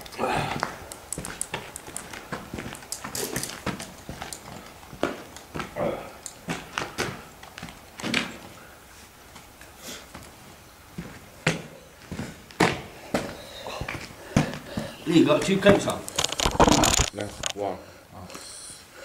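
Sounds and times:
footstep taps and scuffs: 0.6s - 8.6s, 9.3s - 16.1s.

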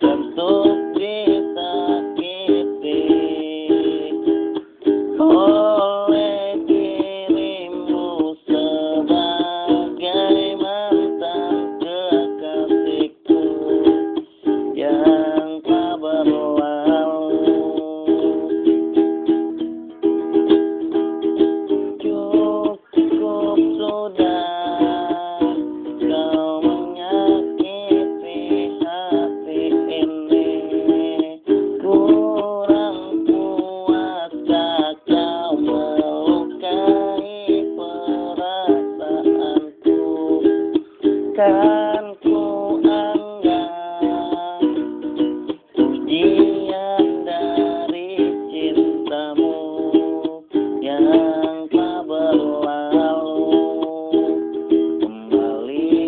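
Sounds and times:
small string instrument strummed: 0.0s - 56.0s.

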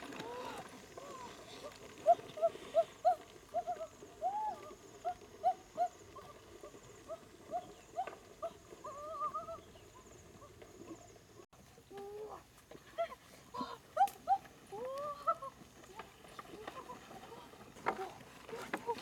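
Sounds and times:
animal wavering call: 0.2s - 10.0s.

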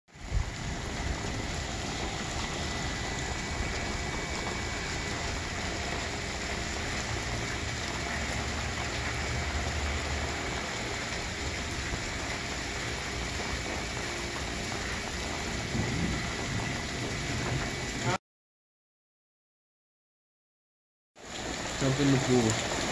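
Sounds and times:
light rain falling: 0.1s - 18.2s, 21.2s - 22.9s
water splashing from spillway: 0.1s - 18.2s, 21.2s - 22.9s
low rumble: 15.4s - 18.0s.

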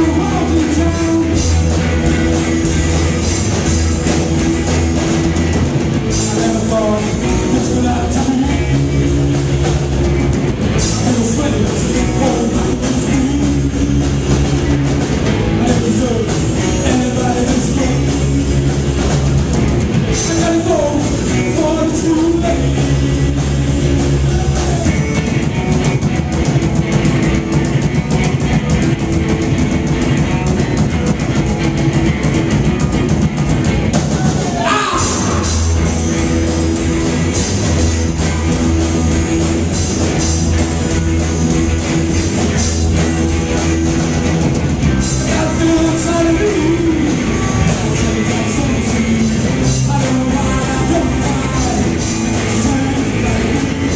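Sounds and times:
live rock band: 0.0s - 53.9s
rising guitar slide: 31.4s - 48.2s
person singing: 34.1s - 35.9s, 45.0s - 53.9s.

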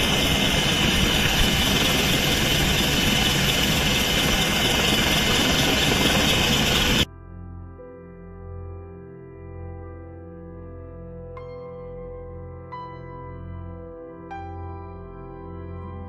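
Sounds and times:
helicopter cabin rotor noise: 0.0s - 7.1s.

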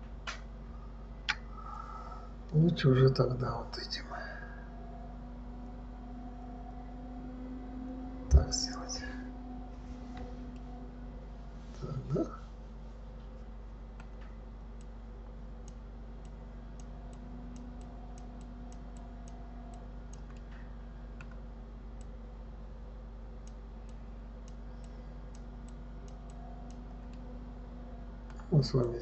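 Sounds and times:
low electrical hum: 0.0s - 29.0s
computer mouse clicks: 15.6s - 20.6s, 21.2s - 21.4s, 23.4s - 27.2s.

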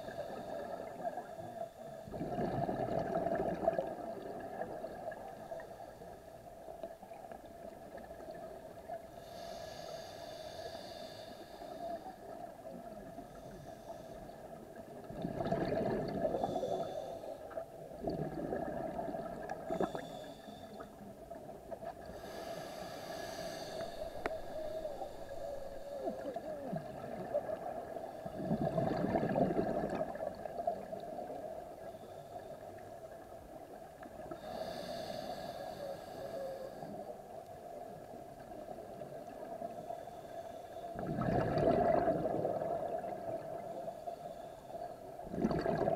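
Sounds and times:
regulator inhale hiss: 0.0s - 2.1s, 9.1s - 12.4s, 13.1s - 14.6s, 16.3s - 17.6s, 19.6s - 21.1s, 22.1s - 26.7s, 31.7s - 32.8s, 34.3s - 38.2s, 39.6s - 41.0s, 43.5s - 45.2s
rush of exhaled bubbles: 2.1s - 5.2s, 15.0s - 16.5s, 17.9s - 20.0s, 23.6s - 30.9s, 41.0s - 43.6s, 45.2s - 45.9s.

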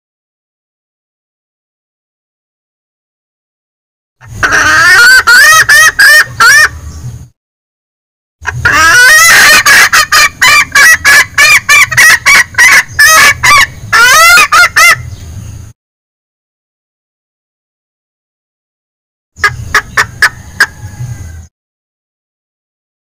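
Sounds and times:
hen junglefowl cackling: 4.2s - 6.8s, 8.4s - 15.2s, 19.4s - 21.5s.

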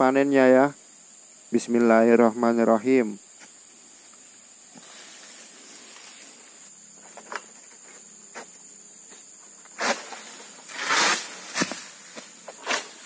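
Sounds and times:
high-pitched insect buzz: 0.0s - 13.0s
sickle cutting palm stalk crack: 9.7s - 13.0s.

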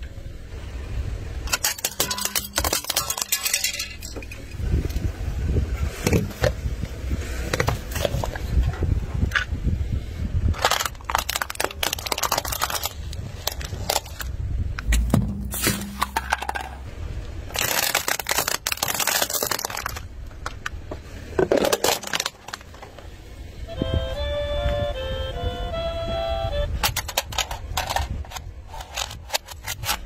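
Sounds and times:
tyre crushing cans and plastic: 1.5s - 4.6s, 6.0s - 6.6s, 7.4s - 8.6s, 10.5s - 16.9s, 17.5s - 20.7s, 21.4s - 23.0s, 26.8s - 30.0s.

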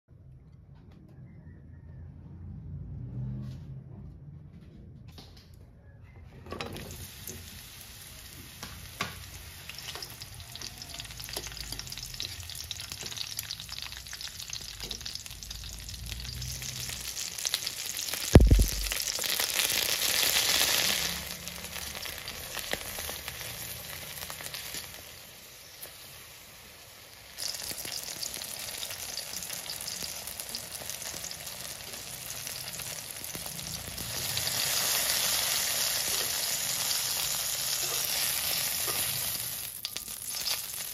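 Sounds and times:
eggplant sizzling in hot oil: 6.8s - 40.9s
loud knock on wok: 18.4s - 19.0s.

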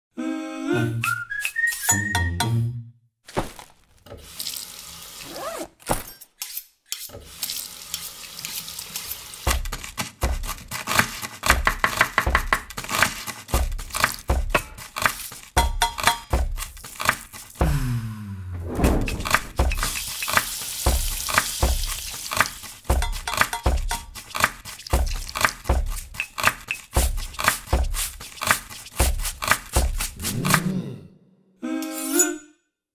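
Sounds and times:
music track: 0.2s - 3.0s
kitchen knocks and clinks: 15.6s - 16.5s, 22.9s - 24.1s
falling sweep: 18.5s - 19.7s
running water: 18.7s - 26.0s.

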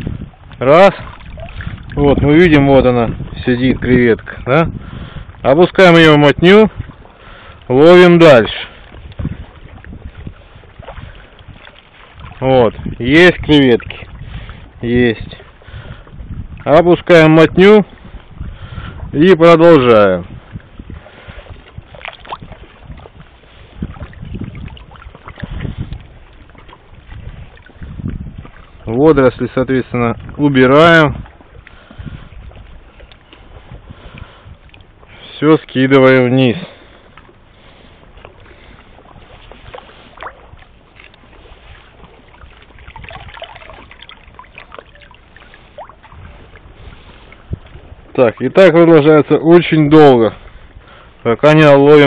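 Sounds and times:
shallow water sloshing and splashing: 0.0s - 52.0s
small splashes from dip net: 42.3s - 46.2s.

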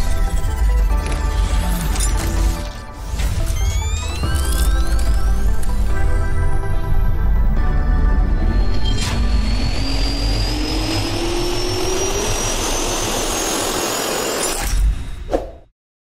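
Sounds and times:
jet engine whine rising: 3.0s - 14.6s.

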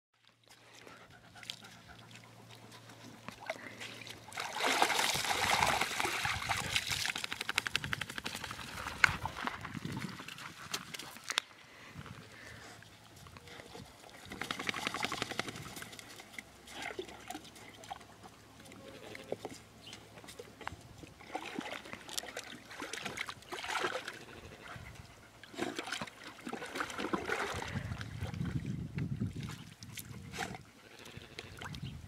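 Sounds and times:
water splashing in a trough: 1.4s - 10.6s, 14.1s - 18.1s, 21.1s - 24.8s, 25.4s - 31.9s.

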